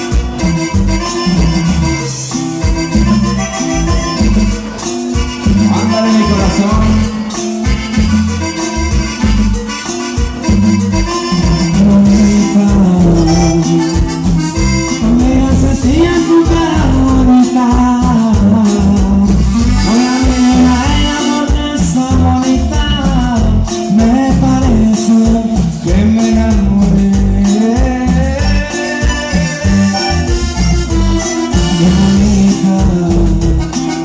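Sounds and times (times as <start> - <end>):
accordion: 0.0 - 34.0
pulsing bass beat: 0.0 - 34.0
regional dance band music: 0.0 - 34.0
person singing: 1.0 - 8.7, 11.0 - 34.0.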